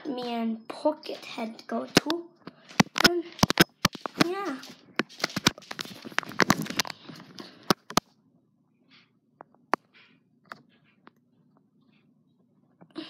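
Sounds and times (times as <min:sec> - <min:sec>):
phone handling rustling: 0:02.0 - 0:04.4, 0:05.0 - 0:08.0
phone clicks: 0:02.7 - 0:04.3.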